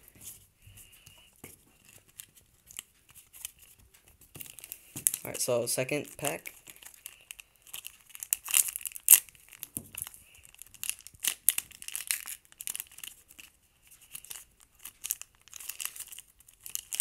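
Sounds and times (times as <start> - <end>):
foil wrapper ripping and crinkling: 6.2 - 17.0.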